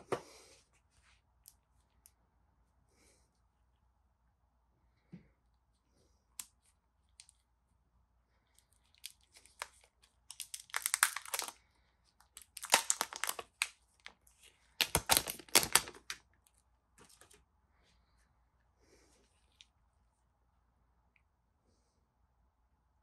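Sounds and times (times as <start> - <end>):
plastic film crackling as peeled: 8.9 - 11.6, 12.2 - 14.2, 14.8 - 16.2.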